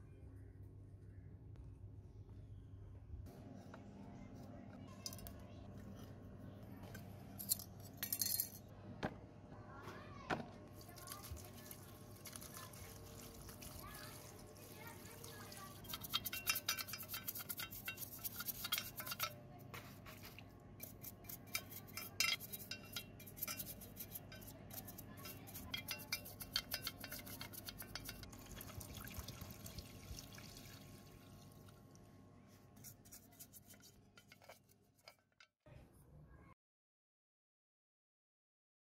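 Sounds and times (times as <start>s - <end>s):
water splashing and dripping: 10.8s - 16.0s, 28.3s - 31.9s
scrubbing metal housing: 14.8s - 28.3s.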